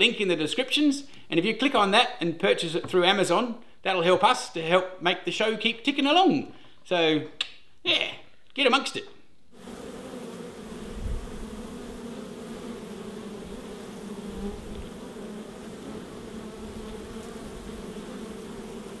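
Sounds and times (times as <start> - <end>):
bees buzzing: 9.6 - 19.0.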